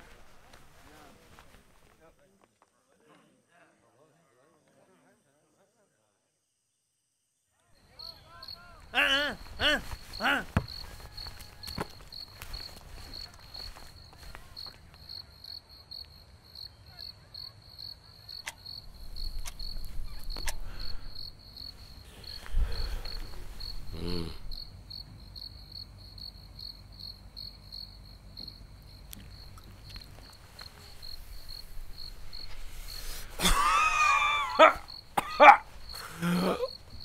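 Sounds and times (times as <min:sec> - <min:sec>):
cricket chirping: 0:04.6 - 0:37.0
low night-time rumble: 0:18.7 - 0:37.0.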